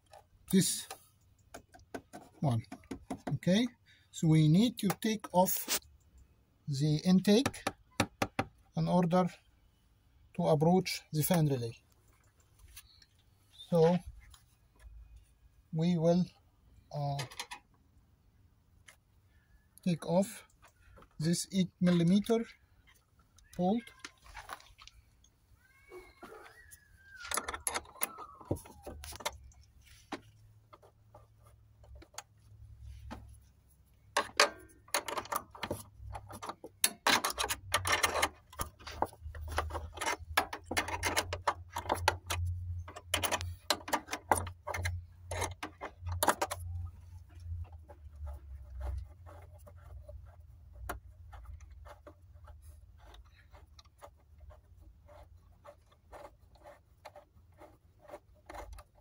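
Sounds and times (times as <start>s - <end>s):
metal wrench clicking on bolt: 34.2s - 46.7s.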